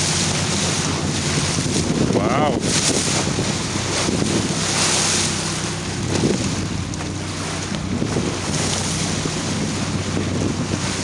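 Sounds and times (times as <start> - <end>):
boat engine humming: 0.0 - 11.0
water rushing past boat: 0.0 - 11.0
wind gusting on microphone: 0.0 - 11.0.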